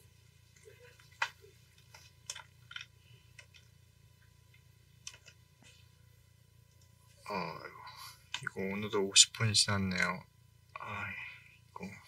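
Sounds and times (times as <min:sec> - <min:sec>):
low steady hum: 0:00.0 - 0:12.0
faint irregular clicks: 0:00.2 - 0:05.9, 0:06.6 - 0:07.0.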